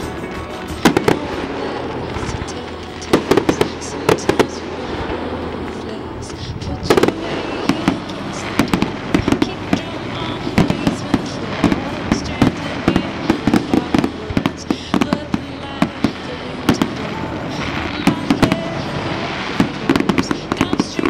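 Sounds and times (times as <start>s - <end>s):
fireworks bangs and crackles: 0.0s - 21.0s.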